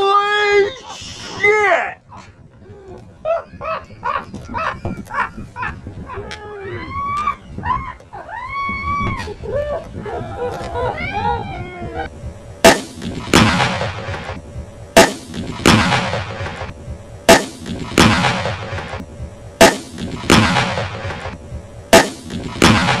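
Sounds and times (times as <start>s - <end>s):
explosion crack: 12.6s - 14.4s, 15.0s - 16.7s, 17.3s - 19.0s, 19.6s - 23.0s
explosion boom: 12.7s - 14.4s, 15.0s - 16.7s, 17.3s - 19.0s, 19.6s - 21.4s, 22.0s - 23.0s.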